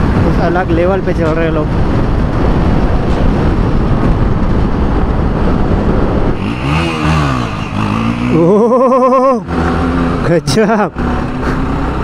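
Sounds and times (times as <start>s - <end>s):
wind rush on microphone: 0.0s - 10.3s
motorcycle engine revving: 1.7s - 12.0s.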